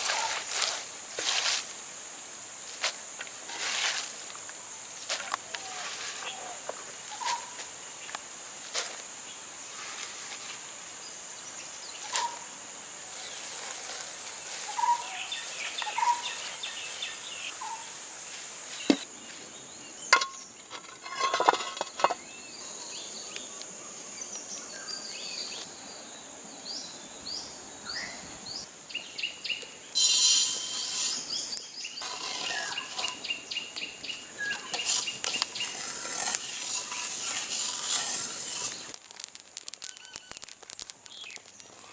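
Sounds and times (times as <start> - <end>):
insects buzzing: 0.0 - 41.9
birds: 5.2 - 8.2, 11.0 - 17.9, 30.8 - 38.9
rustling of chopped beans: 29.7 - 41.9
seeds rushing onto pan: 29.9 - 33.2, 34.4 - 41.9
spoon scraping pan: 32.0 - 33.2, 34.5 - 40.2.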